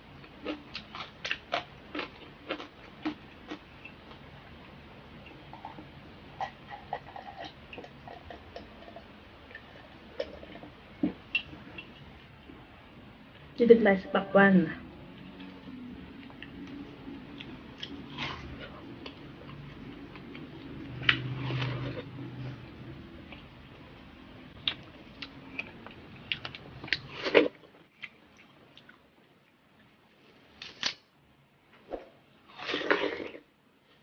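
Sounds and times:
biting and chewing watermelon: 0:00.3 - 0:03.6.

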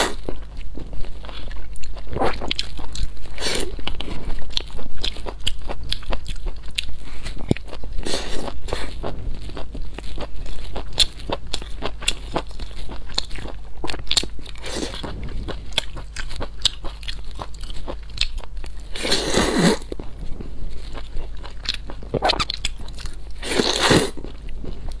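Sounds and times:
wet chewing clicks: 0:00.4 - 0:18.9
slurping noodles: 0:19.0 - 0:19.8, 0:23.4 - 0:24.2.

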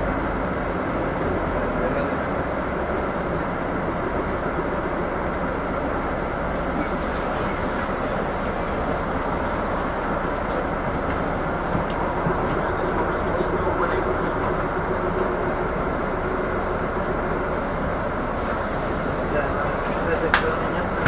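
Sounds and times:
bus engine and road rumble: 0:00.0 - 0:21.0
high hiss: 0:18.4 - 0:21.0.

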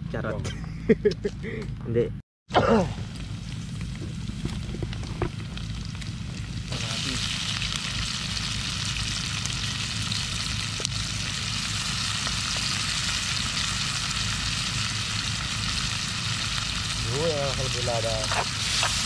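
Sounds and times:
food sizzling in hot oil: 0:03.0 - 0:19.0.

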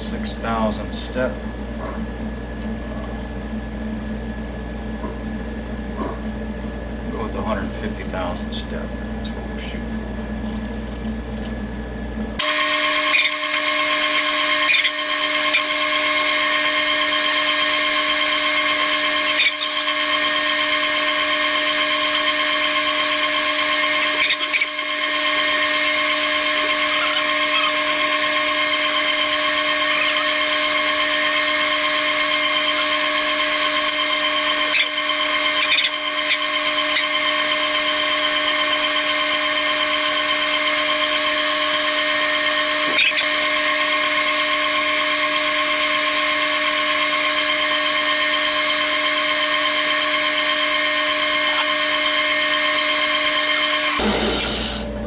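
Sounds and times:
metal lathe whining: 0:12.4 - 0:55.0.

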